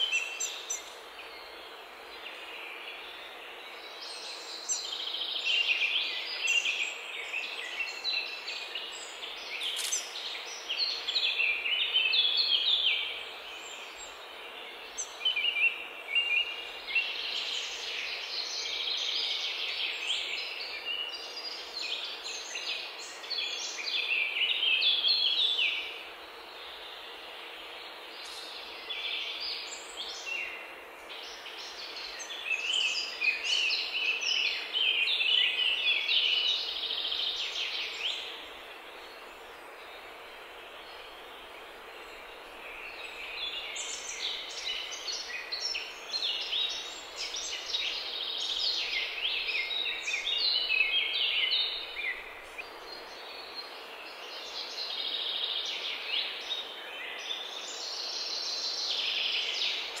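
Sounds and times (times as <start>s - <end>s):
songbird twittering: 8.8s - 14.1s.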